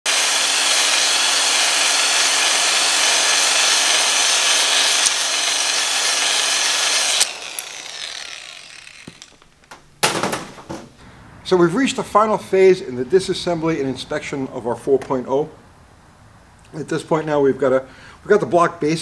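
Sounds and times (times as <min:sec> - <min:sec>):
hone stones scraping metal bore: 0:00.1 - 0:09.4
electric drill motor whine: 0:00.1 - 0:09.5.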